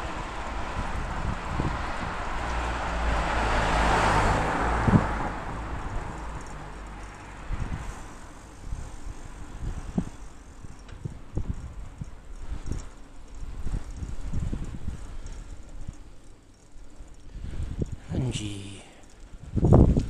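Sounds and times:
car passing: 0:00.0 - 0:10.4
road noise: 0:00.0 - 0:20.0.

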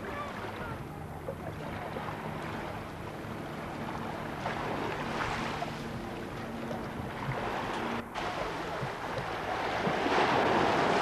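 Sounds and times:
small waves washing on rocks: 0:08.2 - 0:11.0.

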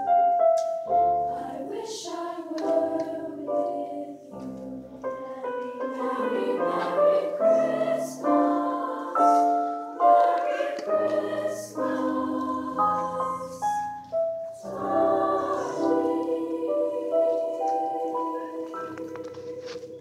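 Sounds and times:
girls' choir singing: 0:01.1 - 0:19.8.

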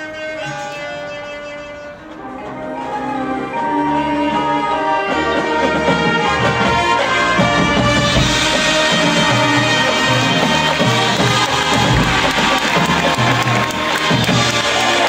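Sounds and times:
marching band brass chords: 0:00.0 - 0:15.0.

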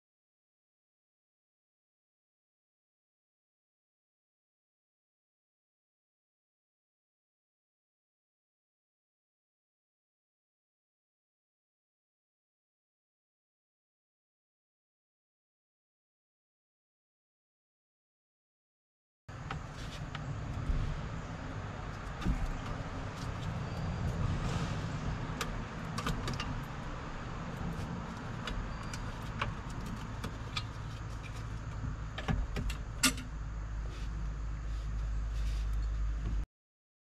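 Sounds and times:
engine running with low rumble: 0:19.3 - 0:36.5.

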